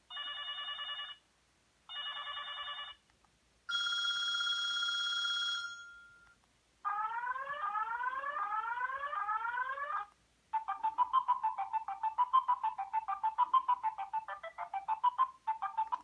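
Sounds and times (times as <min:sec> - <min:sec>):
phone ringtones: 0:00.1 - 0:01.2, 0:01.9 - 0:03.0, 0:03.7 - 0:06.4.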